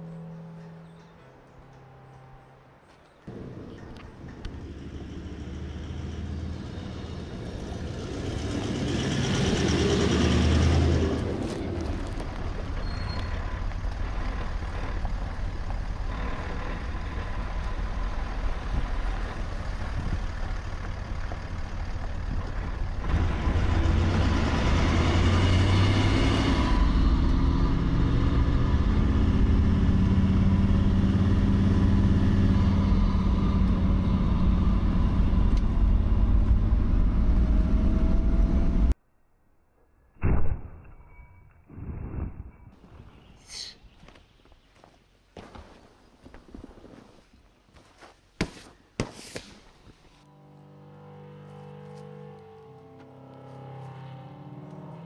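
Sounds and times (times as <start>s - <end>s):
engine and tyre rumble: 2.8s - 39.0s
vehicle passing by: 4.4s - 12.7s, 13.4s - 39.0s.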